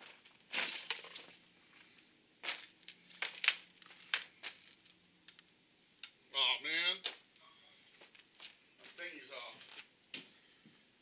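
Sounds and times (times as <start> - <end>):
boots crunching on gravel: 2.4 - 4.8.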